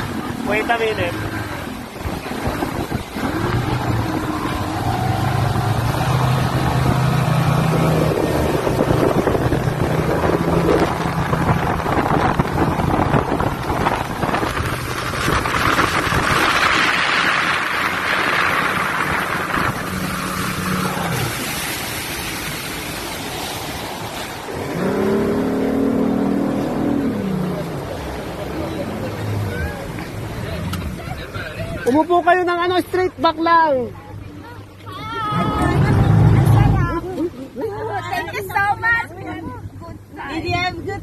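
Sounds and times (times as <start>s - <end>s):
motorboat engine droning: 0.0s - 41.0s
rush of boat wake: 0.0s - 41.0s
wind buffeting microphone: 1.5s - 25.2s.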